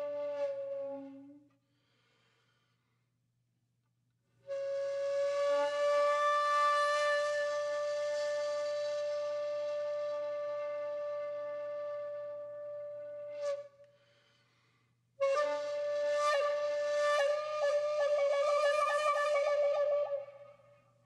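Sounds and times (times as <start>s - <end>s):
flute playing held notes and trill: 15.2s - 20.6s.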